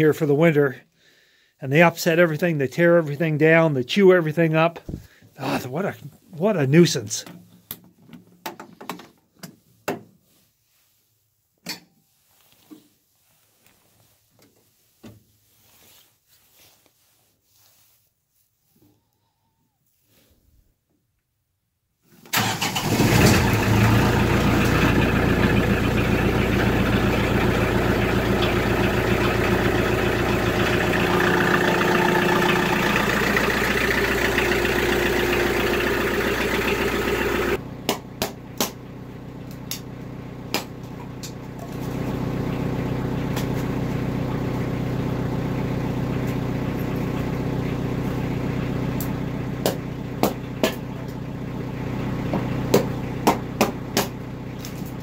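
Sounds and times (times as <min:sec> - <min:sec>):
tractor diesel engine running: 0:22.3 - 0:55.0.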